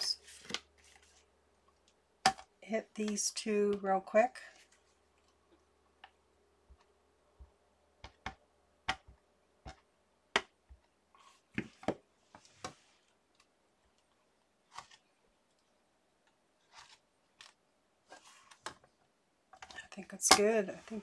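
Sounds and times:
soft rustle: 0:00.1 - 0:02.0, 0:04.4 - 0:05.7, 0:11.1 - 0:13.2, 0:16.6 - 0:18.8.

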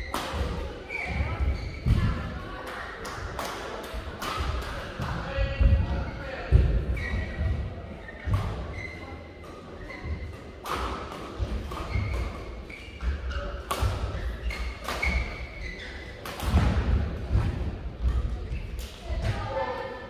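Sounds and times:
shoe squeaks: 0:00.0 - 0:02.2, 0:06.8 - 0:16.3
racket hitting shuttlecock: 0:00.1 - 0:00.6, 0:10.6 - 0:12.4, 0:13.0 - 0:18.2.

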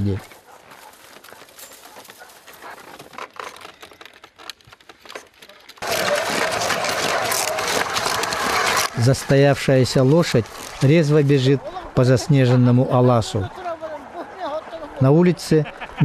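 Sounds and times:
sledge running over snow: 0:00.7 - 0:11.4
wire-mesh traps rattling: 0:03.0 - 0:09.2.

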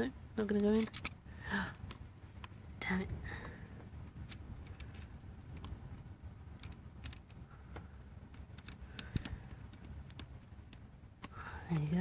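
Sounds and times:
steady low rumble: 0:00.0 - 0:12.0
screwdriver clicking on plastic: 0:06.6 - 0:07.4, 0:08.3 - 0:11.9.

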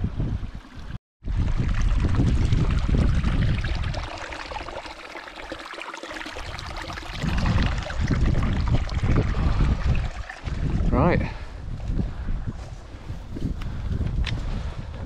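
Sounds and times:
wind buffeting microphone: 0:00.0 - 0:04.8, 0:06.3 - 0:15.0.

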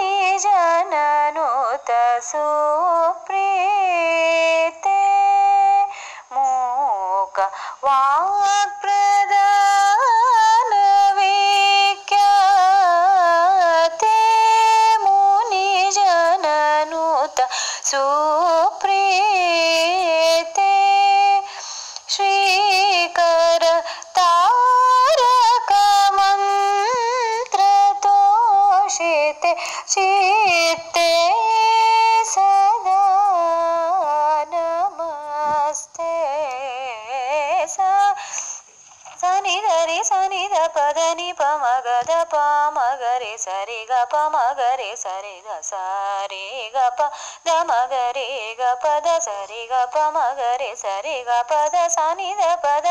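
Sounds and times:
woman singing devotional song: 0:00.0 - 0:52.9.

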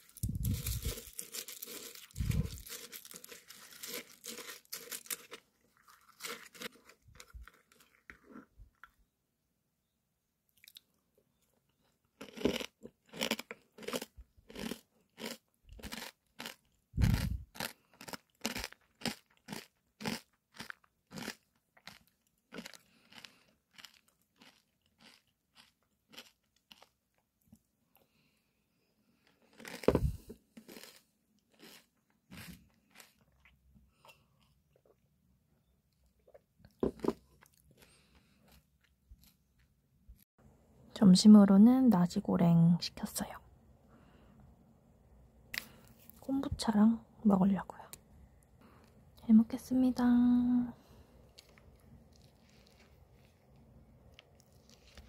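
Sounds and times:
crunchy cereal chewing: 0:00.0 - 0:09.0, 0:11.7 - 0:28.2, 0:29.2 - 0:35.0, 0:35.9 - 0:39.8, 0:51.3 - 0:55.0.

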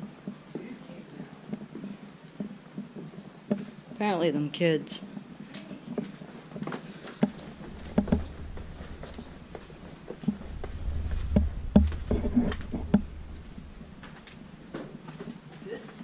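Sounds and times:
footsteps on wooden stairs: 0:05.9 - 0:15.5
low rumble: 0:07.4 - 0:14.7.

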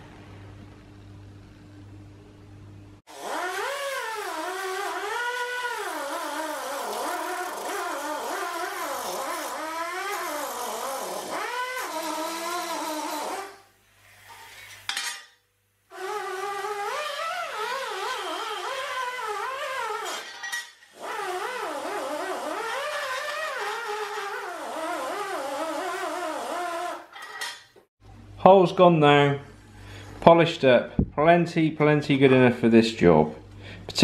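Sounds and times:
die grinder whining on metal: 0:03.1 - 0:13.5.

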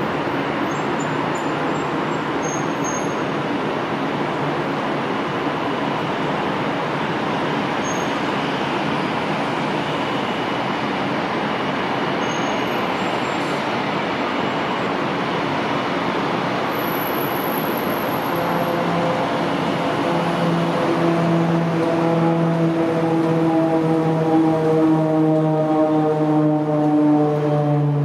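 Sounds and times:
turboprop engines drone: 0:00.0 - 0:28.0
propeller hum: 0:16.8 - 0:28.0.

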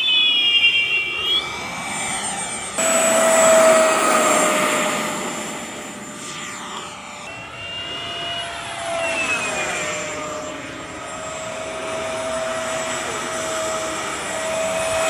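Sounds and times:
jet-like whistle: 0:00.0 - 0:15.0
electric ducted fan whine: 0:02.7 - 0:15.0.

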